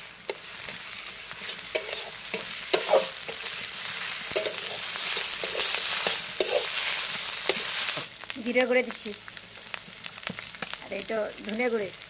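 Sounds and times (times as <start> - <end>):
onions sizzling in hot oil: 0.0 - 12.0
spatula scraping a metal pan: 0.3 - 8.0.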